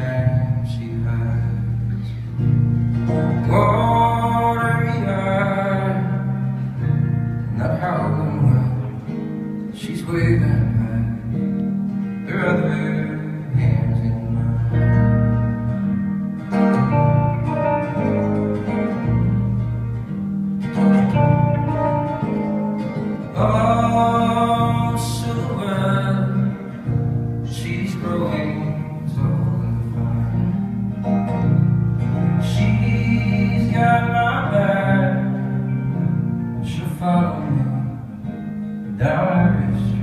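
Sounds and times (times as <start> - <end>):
guitar accompaniment: 0.0 - 40.0
person singing: 3.2 - 9.2, 21.0 - 30.6, 32.0 - 40.0.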